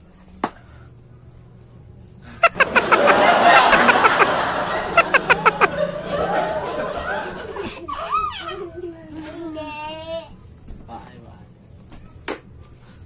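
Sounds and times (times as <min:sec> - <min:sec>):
people laughing: 0:02.4 - 0:08.9
sharp claps: 0:02.5 - 0:07.7.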